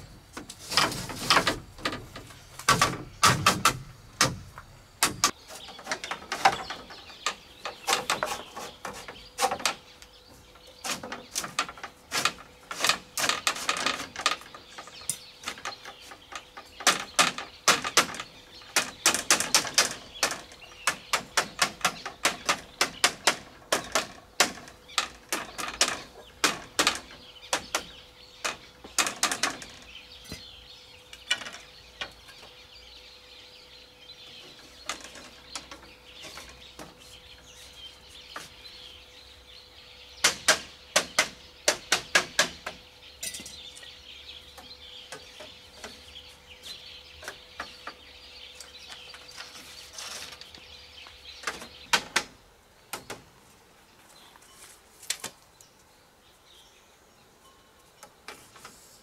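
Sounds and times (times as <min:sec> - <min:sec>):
bamboo strips clattering: 0:00.0 - 0:32.4, 0:34.4 - 0:38.6, 0:48.6 - 0:50.7.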